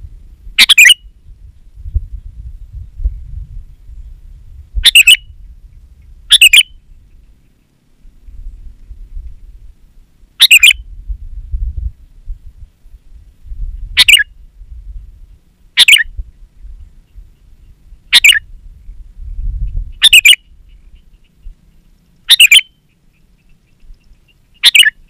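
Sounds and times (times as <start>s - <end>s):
low rumble: 0.0s - 21.7s
bird giving harsh calls: 0.6s - 1.0s, 4.8s - 5.3s, 6.3s - 7.6s, 10.4s - 10.8s, 14.0s - 14.3s, 15.8s - 16.1s, 18.0s - 18.5s, 19.9s - 25.0s.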